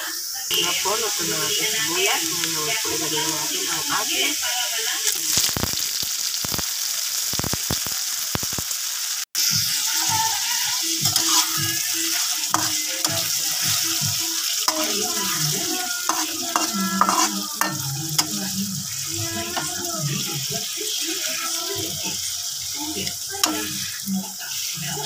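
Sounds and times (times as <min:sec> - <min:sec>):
onion and tomato sizzling in oil: 0:00.0 - 0:25.0
metal spatula scraping a pan: 0:11.0 - 0:21.0, 0:23.0 - 0:24.0.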